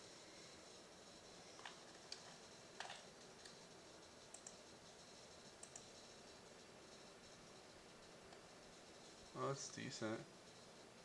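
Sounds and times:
computer mouse clicks: 0:01.6 - 0:03.6, 0:04.3 - 0:04.6, 0:05.6 - 0:06.1.

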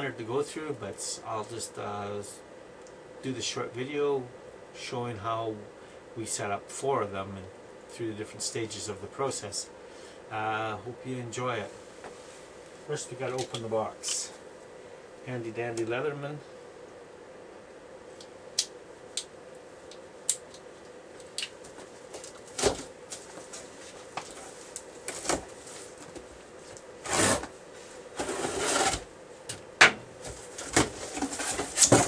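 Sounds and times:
cardboard rustling: 0:21.7 - 0:29.1, 0:30.2 - 0:32.0.

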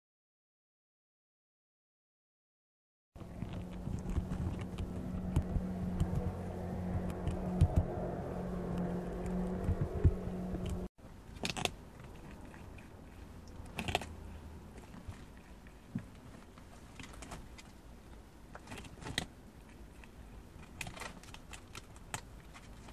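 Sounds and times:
low hum: 0:03.2 - 0:11.2
animal gnawing corn: 0:03.2 - 0:22.9.

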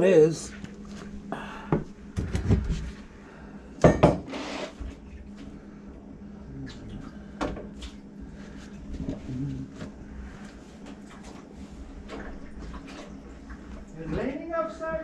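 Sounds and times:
faint steady hum: 0:00.0 - 0:15.0
short scrape: 0:04.3 - 0:04.8.

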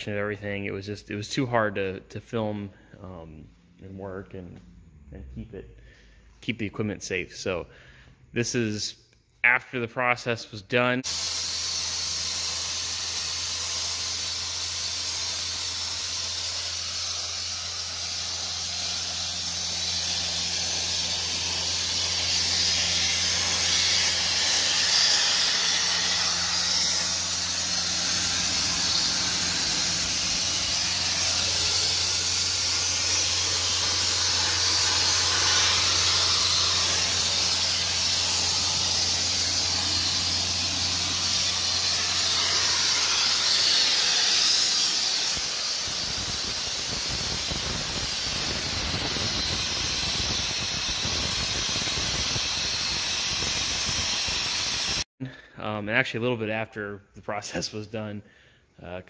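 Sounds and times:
sandblaster nozzle hissing: 0:11.0 - 0:55.1
low hum: 0:18.1 - 0:46.0.

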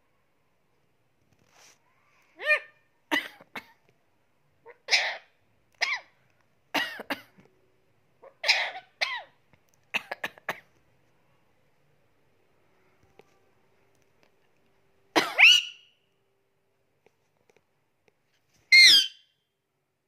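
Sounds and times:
parakeet calls and clicks: 0:04.9 - 0:06.3.

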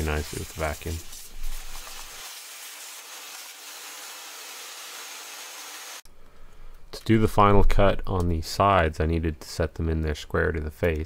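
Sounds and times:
vacuum cleaner sucking up metal chips: 0:00.0 - 0:06.0.

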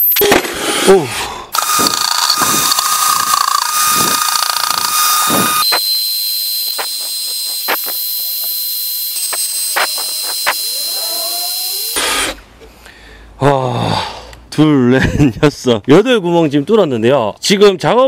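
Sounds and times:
power drill grinding into tile: 0:01.5 - 0:12.4
sharp clicks: 0:01.6 - 0:06.0, 0:06.6 - 0:10.7.

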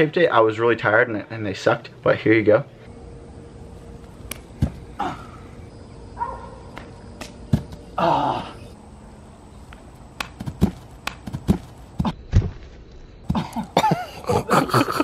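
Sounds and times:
thuds on grass: 0:04.6 - 0:04.8, 0:06.8 - 0:07.8, 0:10.2 - 0:13.5.

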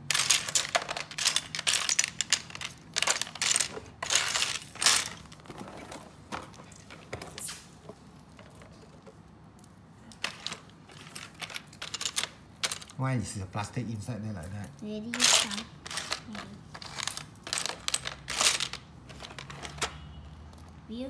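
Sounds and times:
plastic bricks clicking and clattering: 0:00.0 - 0:07.3, 0:10.1 - 0:13.0, 0:15.1 - 0:20.0.

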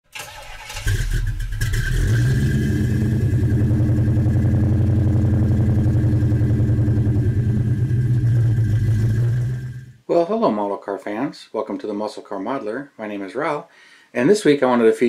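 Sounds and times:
car engine starting and idling: 0:00.1 - 0:10.0.

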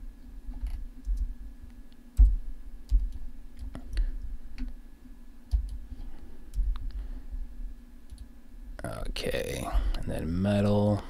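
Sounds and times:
faint steady hum: 0:00.0 - 0:11.0
computer mouse clicks: 0:05.5 - 0:05.8, 0:08.1 - 0:08.3
keyboard key presses: 0:05.5 - 0:05.8.

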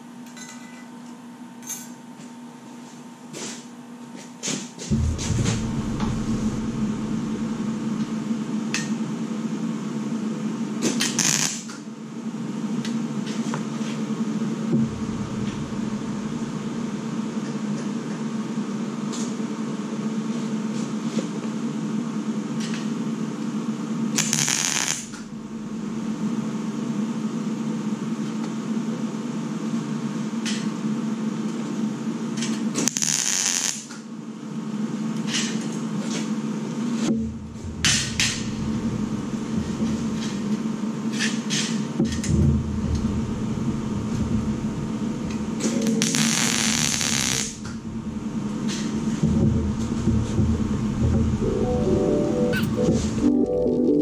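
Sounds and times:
low machine hum: 0:04.9 - 0:09.2, 0:14.4 - 0:17.9, 0:25.0 - 0:27.4, 0:37.1 - 0:41.2, 0:42.0 - 0:45.9, 0:47.6 - 0:54.0
arc welder bursts: 0:11.1 - 0:11.7, 0:24.2 - 0:25.2, 0:32.9 - 0:33.9, 0:45.8 - 0:47.7.

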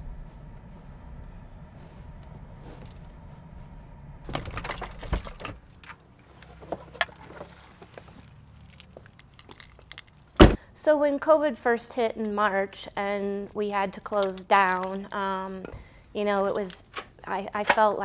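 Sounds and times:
car engine idling: 0:00.0 - 0:08.2
car keys jangling: 0:04.3 - 0:07.4, 0:08.5 - 0:10.4.

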